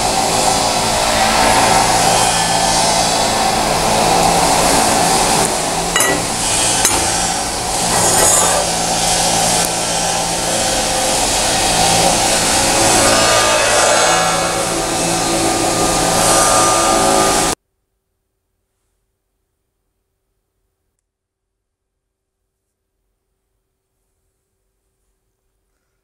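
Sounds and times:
welding arc hissing and buzzing: 0:00.0 - 0:17.6.

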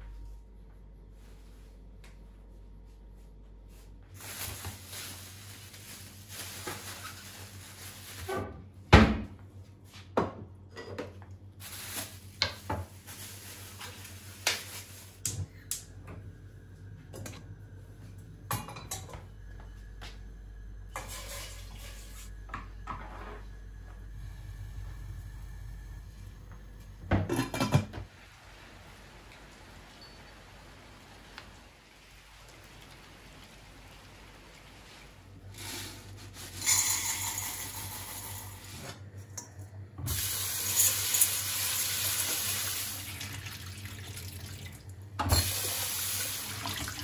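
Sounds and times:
dishes clinking and knocking: 0:27.1 - 0:28.0.

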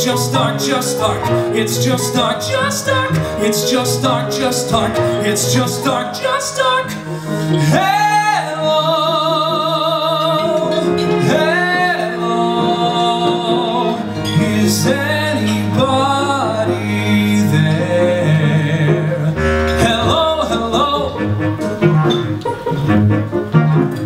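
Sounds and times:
person singing: 0:00.0 - 0:23.0
live band music: 0:10.5 - 0:24.0.

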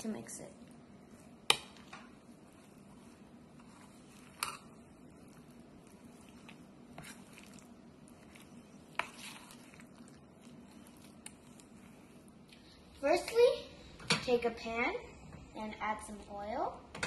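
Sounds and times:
spoon stirring wet batter: 0:00.0 - 0:13.3.

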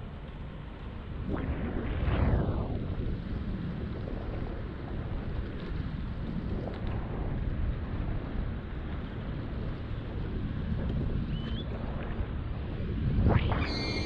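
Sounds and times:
wind rushing over microphone: 0:00.9 - 0:14.0.

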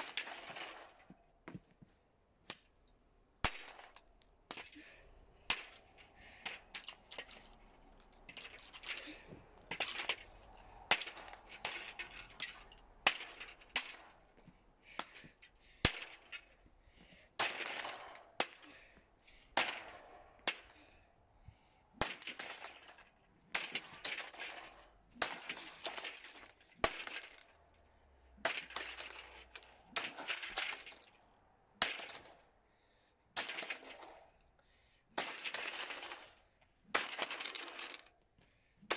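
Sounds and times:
fan being smashed with cracks: 0:00.0 - 0:01.1, 0:08.3 - 0:14.2, 0:15.0 - 0:16.5, 0:17.4 - 0:18.8, 0:19.5 - 0:20.8, 0:22.0 - 0:27.6, 0:28.4 - 0:31.2, 0:31.8 - 0:32.4, 0:33.4 - 0:34.2, 0:35.2 - 0:36.3, 0:36.9 - 0:38.1.

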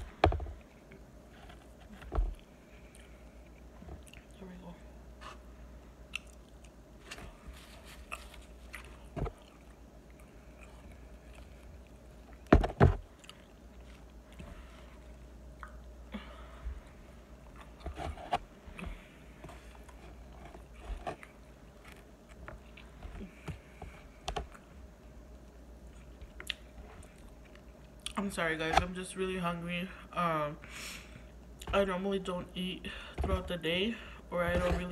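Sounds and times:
person chewing: 0:00.5 - 0:04.4, 0:05.2 - 0:16.0, 0:25.4 - 0:28.2.

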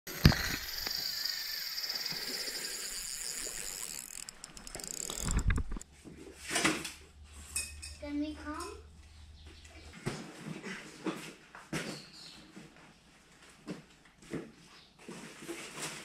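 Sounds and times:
fishing reel whirring clicks: 0:00.1 - 0:05.8.

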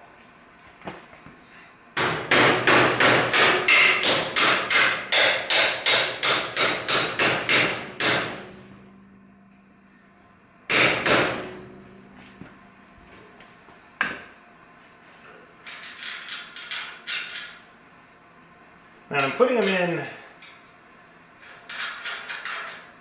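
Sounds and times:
hammer striking a bolt: 0:02.0 - 0:08.8, 0:10.7 - 0:12.6.

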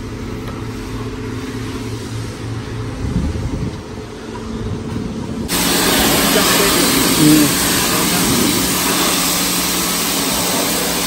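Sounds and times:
pressure washer spraying water: 0:05.5 - 0:11.0.

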